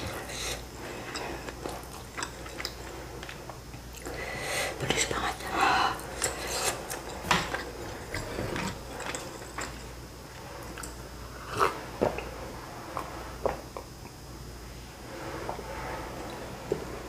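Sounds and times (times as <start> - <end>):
breaths: 4.0 - 4.8.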